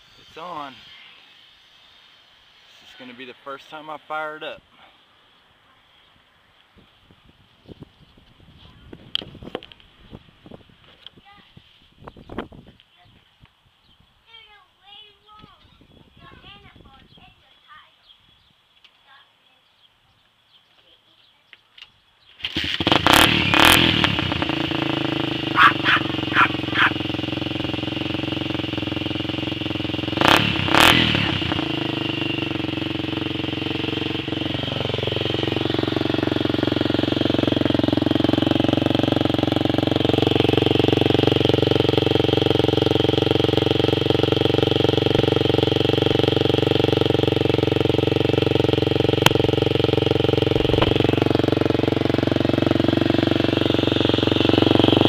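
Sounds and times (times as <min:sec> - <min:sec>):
engine starting: 0:22.4 - 0:23.6
engine revving in throttle blips: 0:22.4 - 0:55.0
engine idling: 0:22.5 - 0:55.0.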